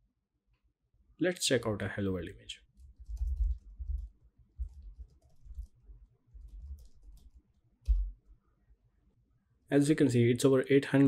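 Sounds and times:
computer keyboard typing: 2.8s - 8.1s.

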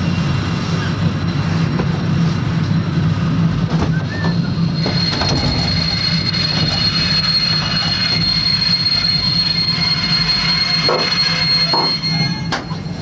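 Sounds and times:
low rumble of train: 0.0s - 13.0s
train wheels squealing: 3.7s - 13.0s.

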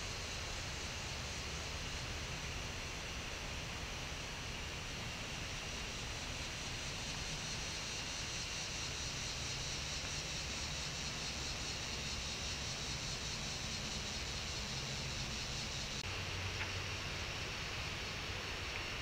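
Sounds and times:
constant high-pitched tone: 0.0s - 19.0s
microphone hiss: 0.0s - 19.0s.

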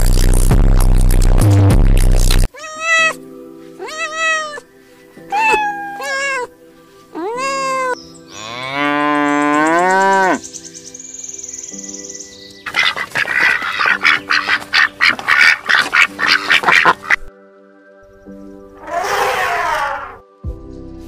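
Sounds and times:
soft background music: 2.4s - 21.0s
kitten meowing: 2.5s - 3.2s, 3.8s - 4.6s, 5.3s - 6.5s, 7.2s - 8.0s
cow mooing: 8.3s - 10.4s.

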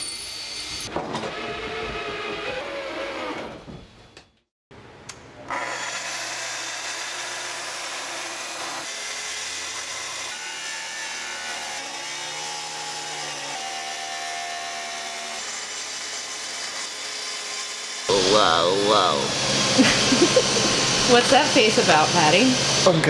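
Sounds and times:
track saw cutting wood: 0.0s - 3.7s, 5.5s - 23.0s.

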